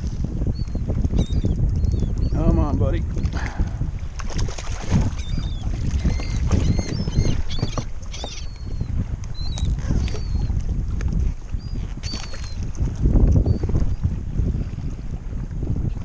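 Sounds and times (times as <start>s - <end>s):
water lapping against kayak hull: 0.0s - 16.0s
wind rumbling on microphone: 0.0s - 16.0s
seabirds calling: 0.5s - 3.4s, 5.0s - 10.6s, 11.6s - 12.6s.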